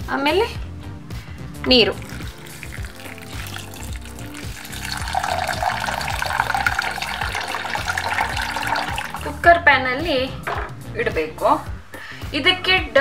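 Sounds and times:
background music: 0.0 - 13.0
water pouring into a metal pot: 1.7 - 9.4.

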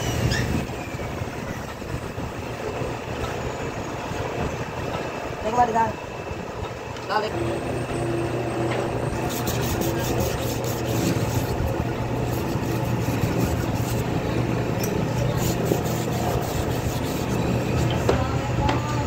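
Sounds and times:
steady low hum: 6.1 - 19.0
emery cloth rubbing on steel: 9.2 - 18.1.

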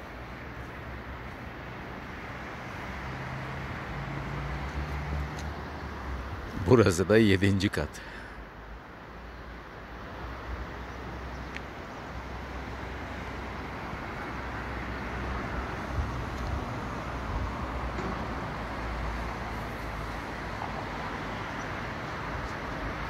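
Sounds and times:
steady outdoor town noise: 0.0 - 23.0
wind rumbling on microphone: 15.7 - 18.0.

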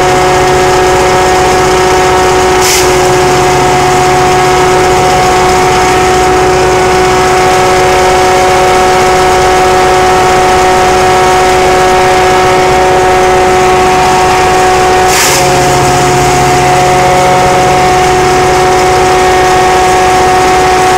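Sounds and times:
chipper whining: 0.0 - 20.9
tractor engine: 0.0 - 20.9
palm fronds being chopped: 15.1 - 15.5.

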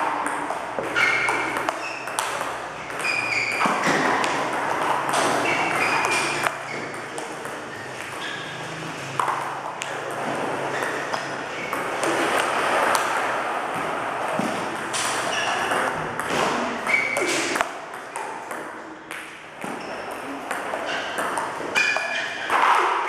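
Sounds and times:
table tennis balls clicking: 0.0 - 23.0.

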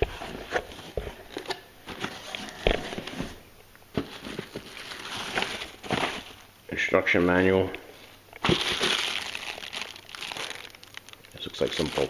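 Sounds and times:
cardboard and plastic rustling: 0.0 - 6.5, 8.0 - 12.0.

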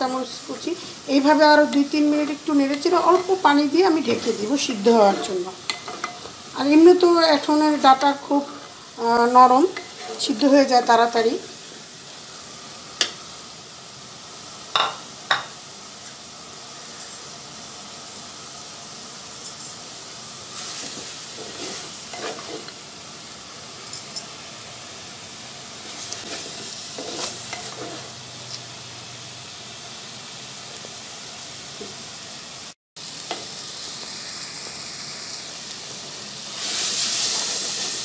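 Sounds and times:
food sizzling in oil: 0.0 - 38.0
spatula scraping and knocking pot: 20.9 - 22.8, 26.0 - 28.1.

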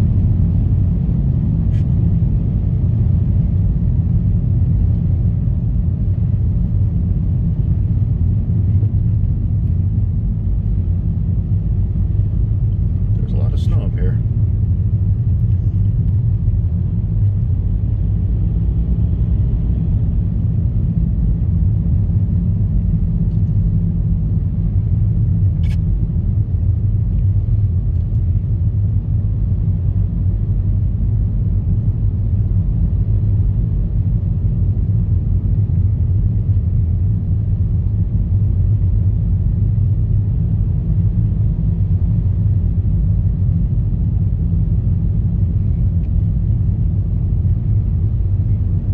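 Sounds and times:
car driving on snowy road: 0.0 - 48.9
short click: 25.6 - 25.8.

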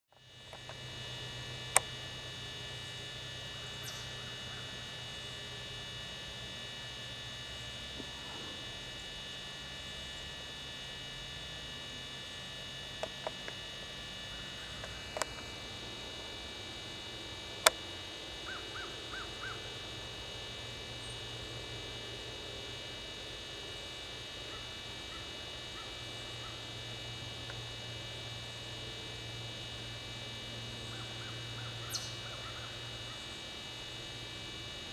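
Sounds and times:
steady hum: 0.1 - 34.9
faint bird chirps: 3.8 - 4.6, 30.9 - 32.7.

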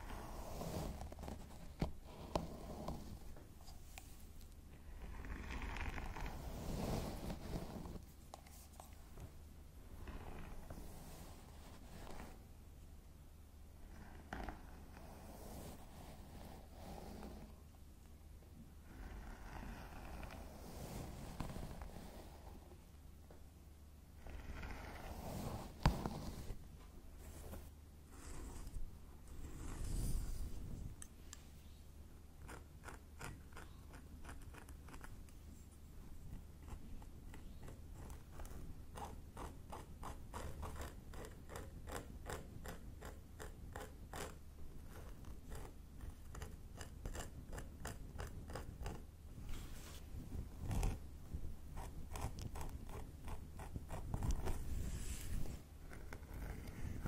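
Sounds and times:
tool scratching through hair: 5.1 - 8.9, 14.3 - 17.5, 18.9 - 22.6, 24.2 - 26.6, 36.6 - 51.0, 51.7 - 57.0.

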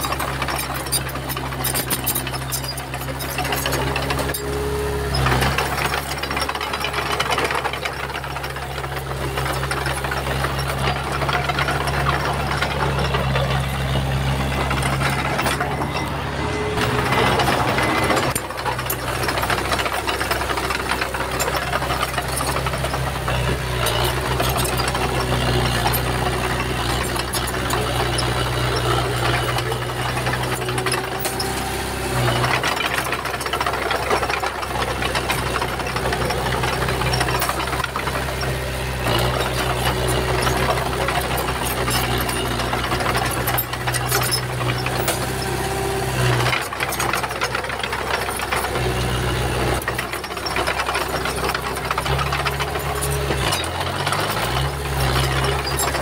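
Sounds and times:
bulldozer diesel engine running: 0.0 - 56.0
rattling and clanking: 0.0 - 56.0.

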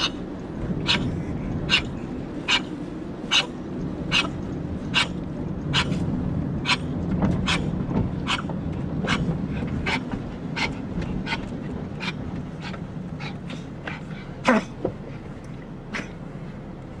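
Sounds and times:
dog breathing in noisy gasps: 0.8 - 3.5, 9.0 - 14.4.

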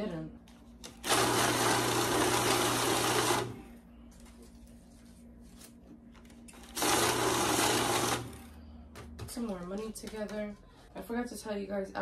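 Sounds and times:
banknote counting machine whirring: 1.0 - 3.6, 6.6 - 8.5.

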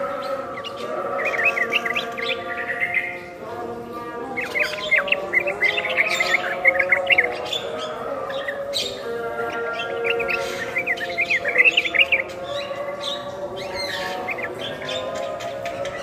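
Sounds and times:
birds chirping and whistling: 0.0 - 16.0.

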